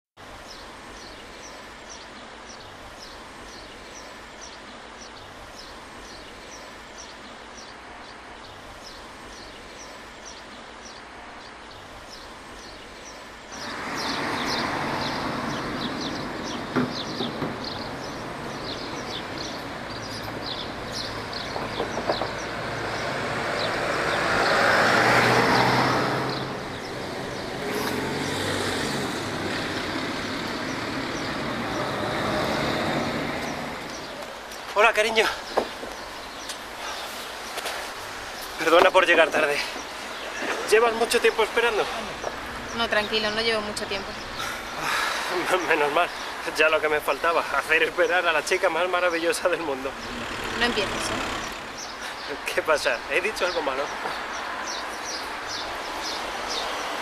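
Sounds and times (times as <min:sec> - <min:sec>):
road traffic noise: 0:00.2 - 0:57.0
bird chirping: 0:00.4 - 0:57.0
vehicle passing loudly: 0:13.6 - 0:34.2, 0:48.9 - 0:52.0.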